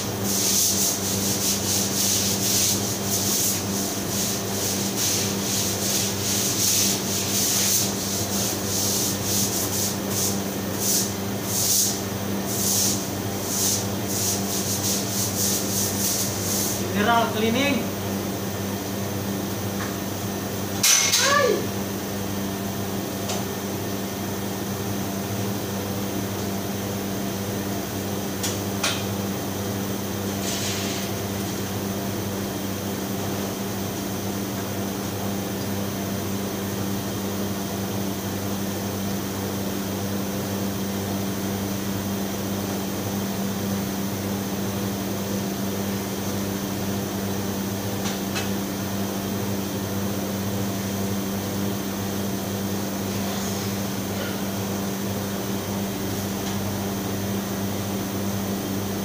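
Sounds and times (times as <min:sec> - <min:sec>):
kitchen machinery humming: 0:00.0 - 0:59.0.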